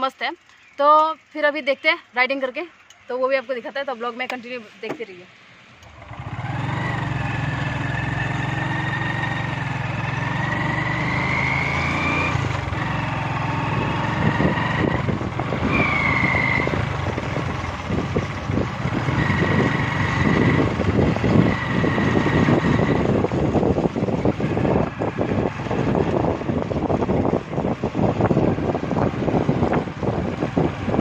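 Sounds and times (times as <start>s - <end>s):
motorcycle engine running: 0.0s - 31.0s
wind buffeting microphone: 6.3s - 31.0s.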